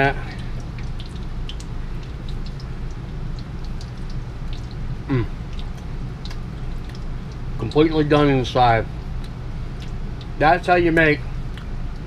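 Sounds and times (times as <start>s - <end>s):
dough frying in hot oil: 0.0s - 12.0s
steady low hum: 0.0s - 12.0s
falling vocal sound: 5.1s - 5.3s.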